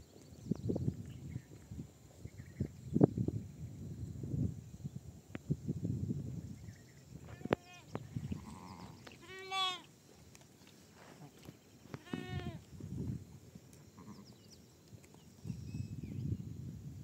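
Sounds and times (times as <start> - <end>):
sheep bleating: 7.4 - 9.9, 12.0 - 12.6.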